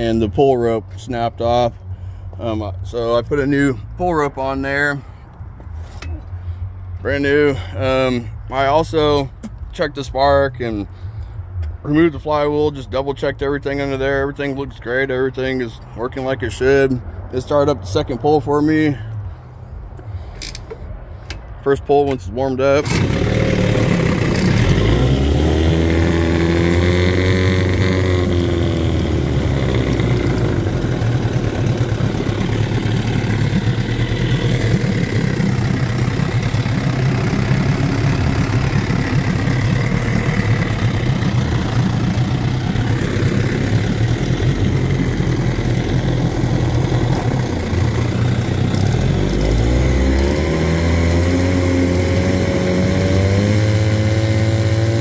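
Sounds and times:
two-stroke outboard motor running: 22.8s - 55.0s.

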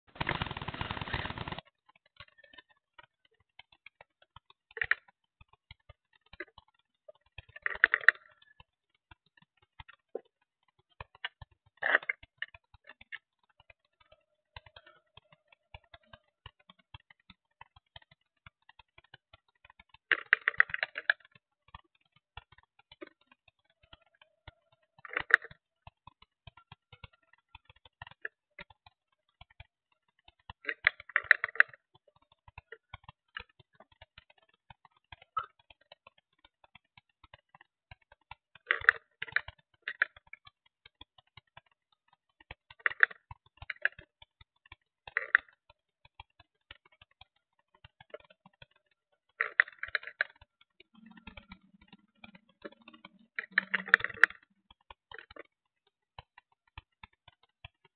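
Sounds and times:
microphone handling crackle: 0.1s - 1.6s.

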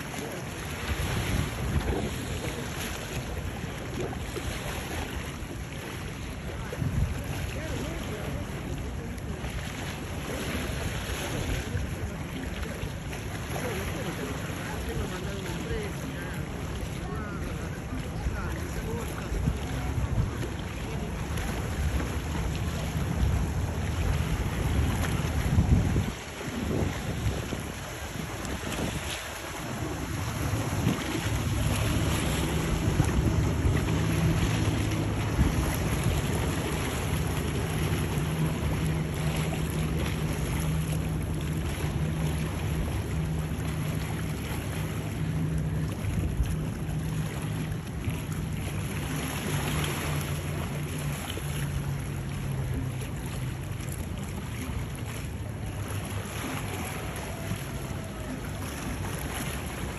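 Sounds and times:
outboard motors droning: 0.0s - 59.9s
water rushing: 0.0s - 59.9s
wind buffeting microphone: 0.2s - 4.6s, 17.0s - 50.2s.

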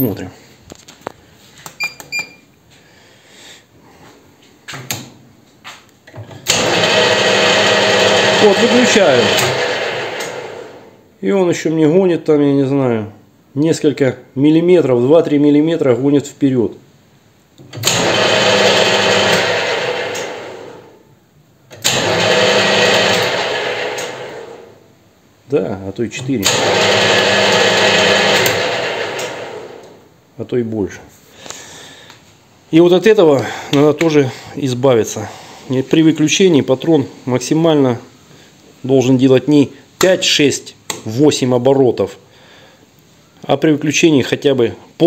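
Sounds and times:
metal lathe running: 6.6s - 10.3s, 26.6s - 29.3s.

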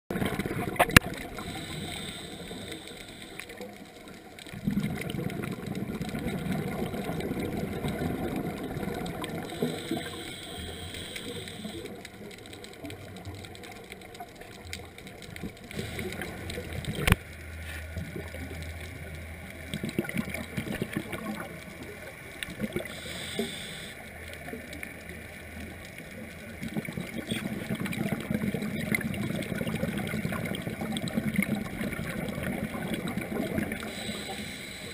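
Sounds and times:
underwater bubbling: 0.1s - 34.9s
regulator breathing hiss: 1.4s - 3.6s, 9.4s - 12.0s, 15.7s - 16.4s, 22.8s - 24.1s, 33.8s - 34.9s.

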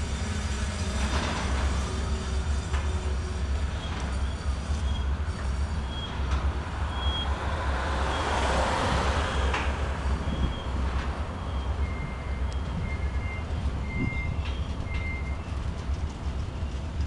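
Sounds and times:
high wheel squeaks: 0.0s - 17.0s
train wheels rumbling on rail: 0.0s - 17.0s.

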